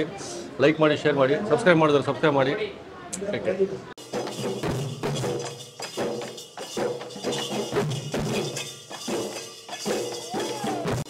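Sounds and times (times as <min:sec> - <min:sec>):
barrel drums beating: 0:04.0 - 0:11.0
jingling percussion: 0:04.0 - 0:11.0.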